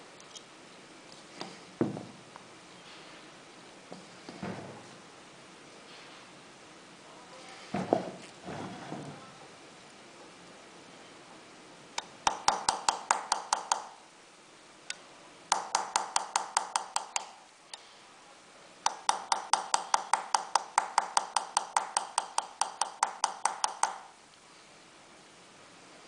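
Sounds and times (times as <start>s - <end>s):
hammer tapping steel chisel: 12.0s - 14.0s, 15.5s - 17.4s, 18.9s - 24.1s.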